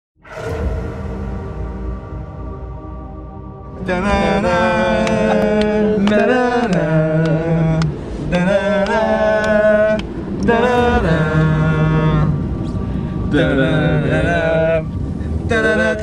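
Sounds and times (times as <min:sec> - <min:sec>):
chant-like music: 0:00.2 - 0:16.0.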